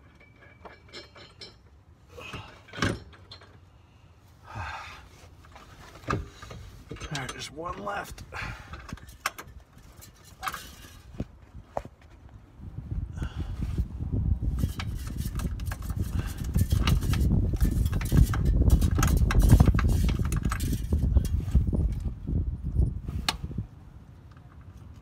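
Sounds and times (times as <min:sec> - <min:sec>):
handling and rustling: 0:05.1 - 0:12.4.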